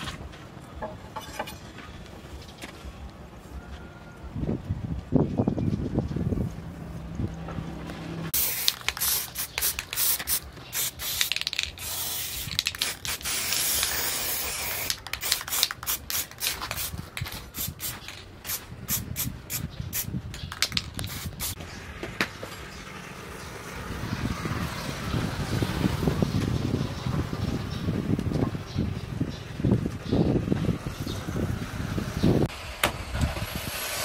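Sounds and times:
aerosol spray hissing: 0:08.4 - 0:17.0.

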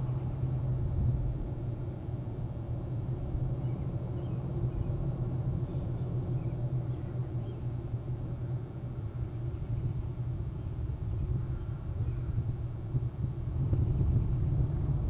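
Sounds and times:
low rumbling outdoor background noise: 0:00.0 - 0:15.0.

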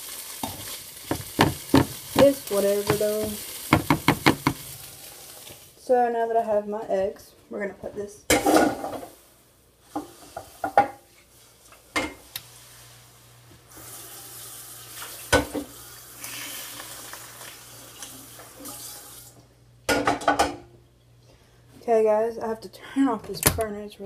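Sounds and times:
dishes clattering: 0:00.4 - 0:04.6, 0:19.9 - 0:20.7
tap running: 0:00.4 - 0:04.7.

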